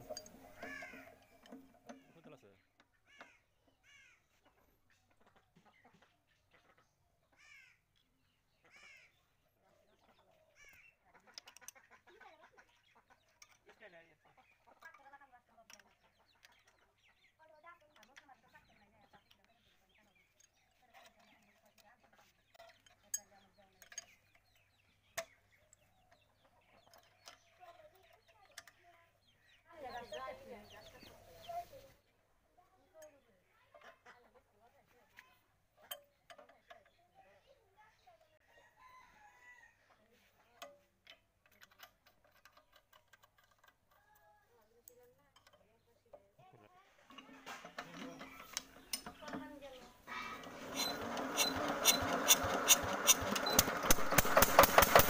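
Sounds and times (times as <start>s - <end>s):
faint clucking bird calls: 0.0s - 55.0s
sharp clicks: 50.4s - 55.0s.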